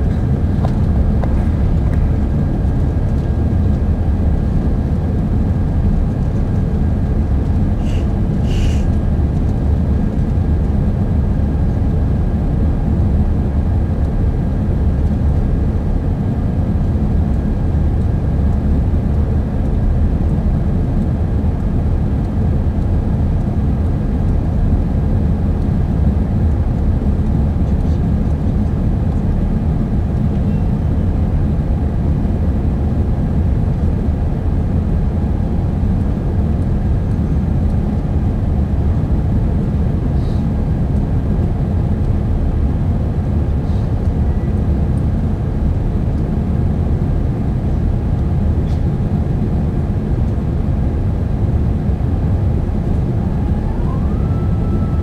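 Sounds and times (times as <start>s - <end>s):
airplane cabin engine rumble: 0.0s - 55.0s.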